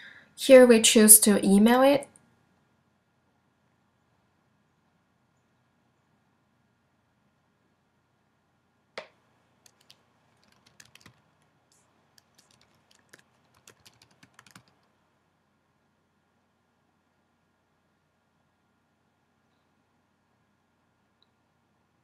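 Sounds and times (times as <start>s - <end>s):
typing on computer keyboard: 9.6s - 14.9s.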